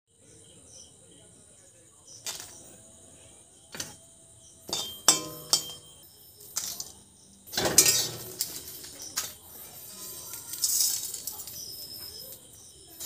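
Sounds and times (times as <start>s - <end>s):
metal spatula clinking in pan: 4.7s - 6.0s, 7.5s - 12.0s
spatula scraping metal pan: 7.5s - 11.3s.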